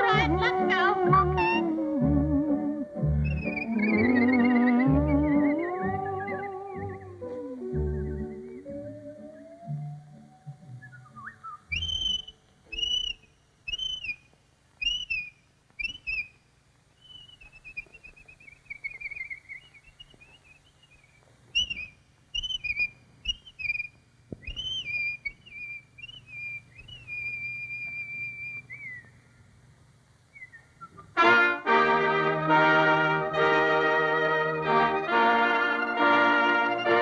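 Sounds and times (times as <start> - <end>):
faint low hum: 0.0 - 37.0
bird-call whistling: 1.1 - 16.4, 17.0 - 29.2, 30.3 - 31.2.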